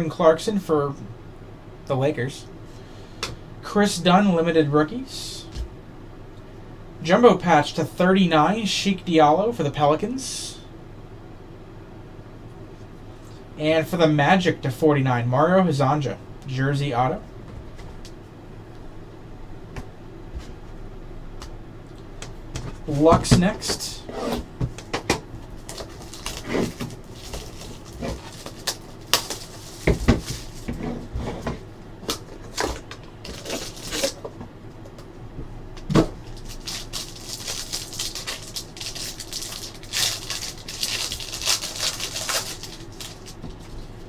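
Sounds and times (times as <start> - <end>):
foil pack crinkling: 25.4 - 30.8, 32.1 - 34.2, 36.2 - 43.9.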